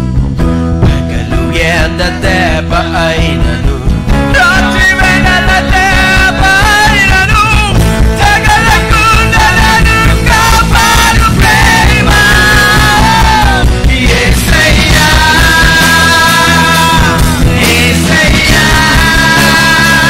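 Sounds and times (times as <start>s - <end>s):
band with drums and guitars: 0.0s - 20.0s
men singing worship song: 1.0s - 20.0s.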